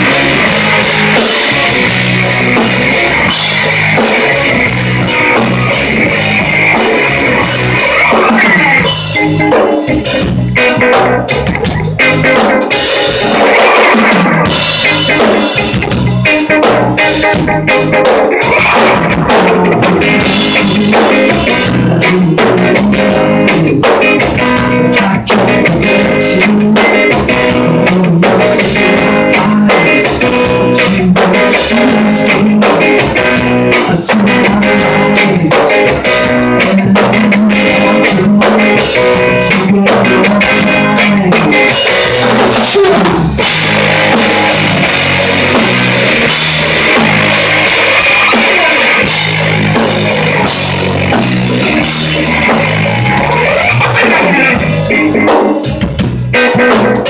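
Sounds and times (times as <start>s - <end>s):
drum kit beat: 0.0s - 57.0s
electric guitar chords: 0.0s - 57.0s.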